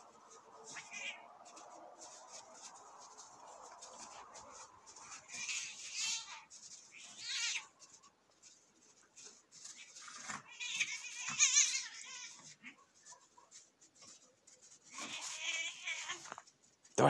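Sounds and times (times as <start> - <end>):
cat yowling in distress: 10.4 - 12.8, 15.0 - 16.3.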